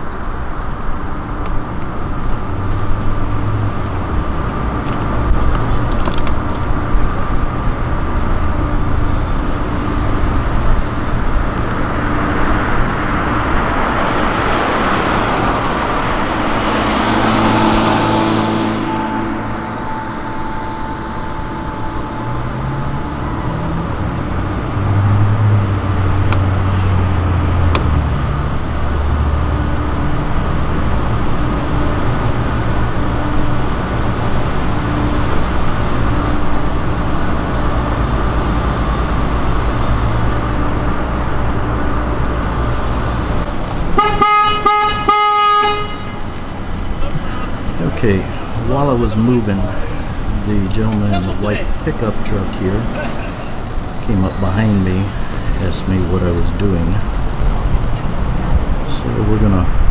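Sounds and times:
vehicle engine rumble: 0:00.0 - 0:59.9
car horn honks: 0:16.9 - 0:24.1, 0:43.8 - 0:55.8.

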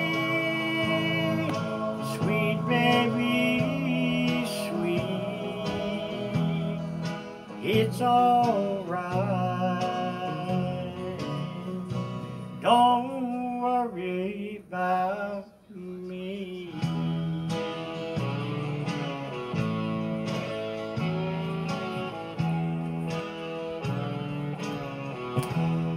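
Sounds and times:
man singing into a microphone: 0:00.0 - 0:19.2
guitar backing track: 0:00.0 - 0:25.9
plucked guitar over held chords: 0:00.0 - 0:25.9.

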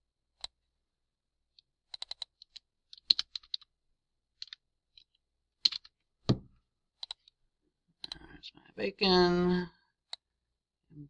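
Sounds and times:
computer keyboard typing: 0:01.8 - 0:03.7, 0:04.4 - 0:06.0, 0:07.0 - 0:07.4.

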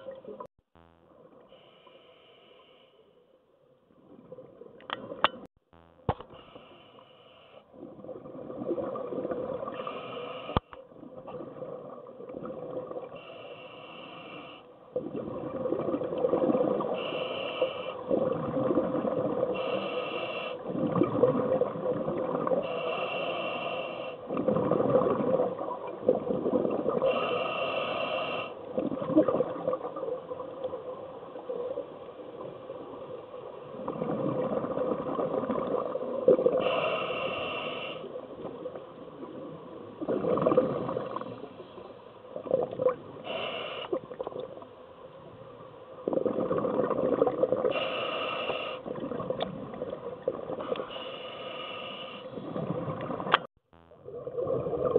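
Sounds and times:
diver breathing through regulator: 0:09.7 - 0:10.8, 0:13.2 - 0:14.7, 0:16.9 - 0:18.2, 0:19.5 - 0:20.7, 0:22.6 - 0:24.3, 0:27.0 - 0:28.7, 0:36.5 - 0:38.2, 0:43.2 - 0:44.0, 0:47.7 - 0:49.0, 0:50.6 - 0:52.7
exhaled bubbles rushing: 0:15.0 - 0:17.0, 0:18.1 - 0:19.5, 0:20.7 - 0:22.6, 0:24.4 - 0:27.0, 0:33.7 - 0:36.6, 0:38.5 - 0:41.4, 0:46.0 - 0:47.7, 0:48.9 - 0:50.6, 0:54.0 - 0:54.9.

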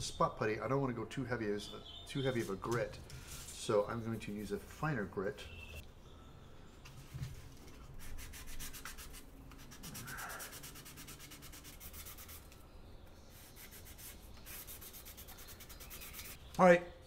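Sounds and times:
sanding stick scrubbing plastic: 0:08.0 - 0:12.5, 0:13.4 - 0:16.4.

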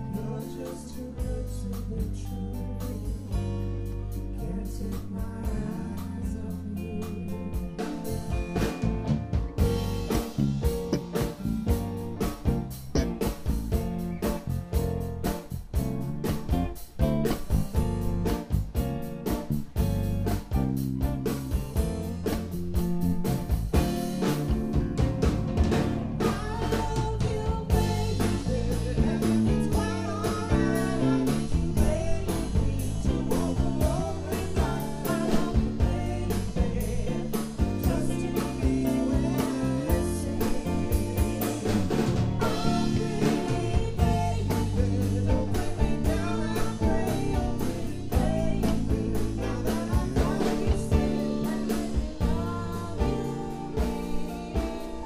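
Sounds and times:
woman singing: 0:00.0 - 0:08.8, 0:26.2 - 0:55.0
bass guitar: 0:00.0 - 0:55.0
drum kit: 0:00.0 - 0:55.0
electric guitar: 0:00.0 - 0:55.0.

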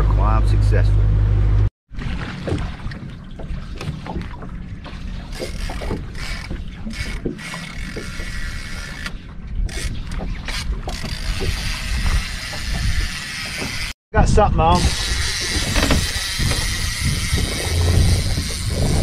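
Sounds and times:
waves slapping boat hull: 0:01.9 - 0:14.0, 0:15.0 - 0:19.0
wind buffeting microphone: 0:14.2 - 0:19.0.

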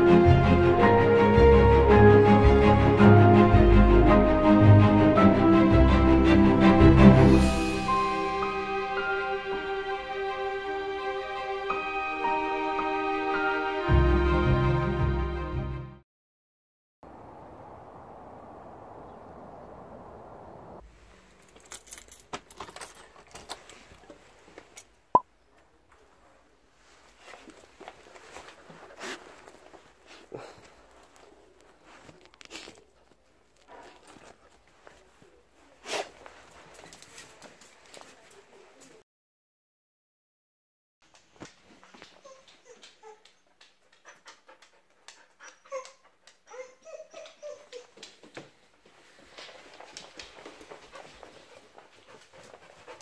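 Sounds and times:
keys jangling in door lock: 0:21.5 - 0:23.6
dog whimpering: 0:42.1 - 0:43.5, 0:45.4 - 0:48.1.

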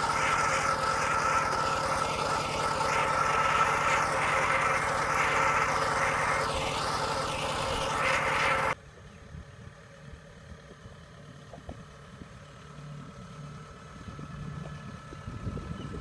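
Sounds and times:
diesel tractor engine running: 0:00.0 - 0:08.8
faint combine harvester engine hum: 0:00.0 - 0:16.0.

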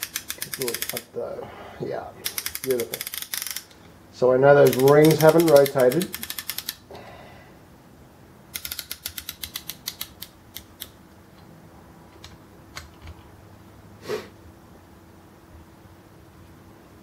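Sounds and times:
ratchet clicking: 0:00.0 - 0:01.1, 0:02.2 - 0:03.8, 0:04.6 - 0:06.8, 0:08.5 - 0:10.9.

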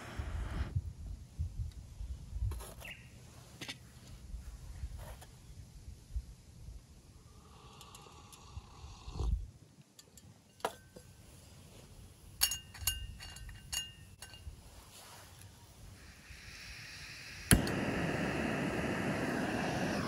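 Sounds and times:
gas burner rushing: 0:00.0 - 0:00.7, 0:16.0 - 0:20.0
gas hissing: 0:00.0 - 0:00.8, 0:15.9 - 0:20.0
metal cookware clinking: 0:12.4 - 0:14.5.

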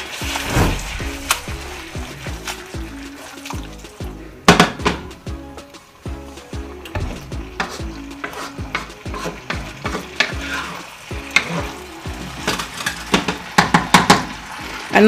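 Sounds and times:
light sizzle: 0:00.0 - 0:04.5, 0:05.1 - 0:15.0.

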